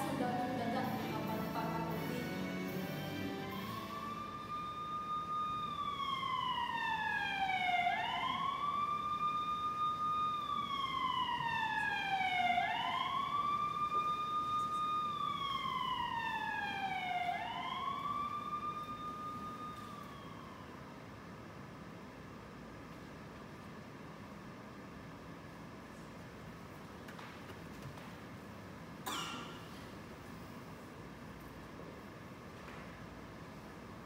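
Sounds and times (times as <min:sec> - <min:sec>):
siren wailing: 0:03.3 - 0:21.0.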